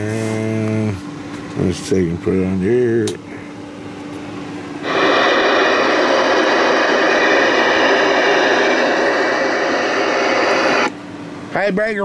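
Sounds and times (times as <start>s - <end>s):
faint steady whistles: 4.7s - 11.0s
radio static hiss: 4.8s - 10.9s.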